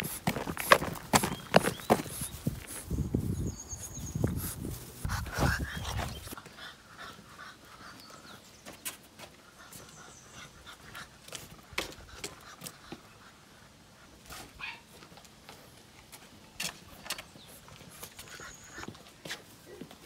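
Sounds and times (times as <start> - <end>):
footsteps and paws on stone: 0.0 - 20.0
puppy panting: 4.1 - 14.8, 17.6 - 19.0.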